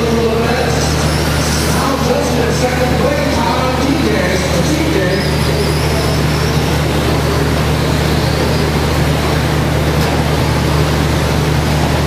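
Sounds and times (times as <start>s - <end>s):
large hall hum: 0.0s - 12.0s
rc truck motors whining: 0.0s - 12.0s.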